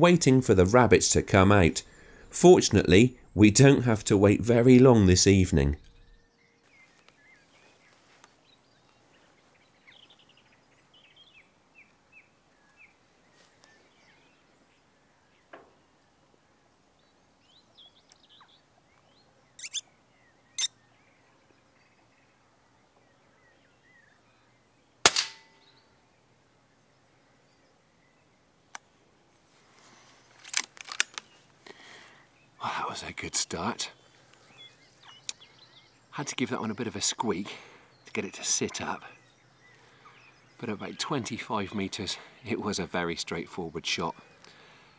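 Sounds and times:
birds chirping faintly: 0:00.0 - 0:44.9
air rifle shot: 0:25.0 - 0:25.6.

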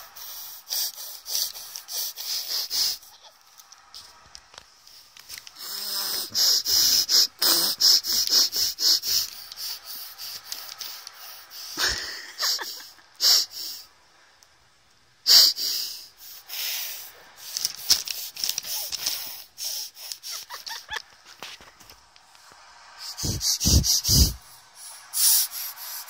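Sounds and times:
baby snorting and sniffing: 0:00.0 - 0:04.2, 0:04.9 - 0:13.8, 0:15.3 - 0:21.8, 0:23.0 - 0:26.0.

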